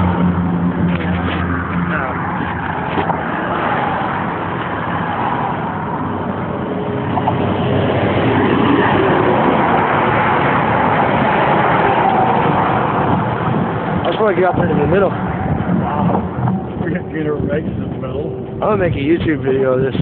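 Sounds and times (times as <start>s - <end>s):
road traffic passing: 0.0s - 20.0s.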